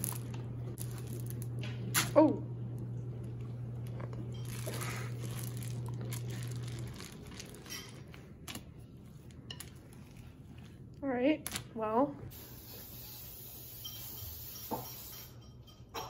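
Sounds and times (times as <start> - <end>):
low hum: 0.0 - 12.6
stirring dough in glass bowl: 3.7 - 10.9.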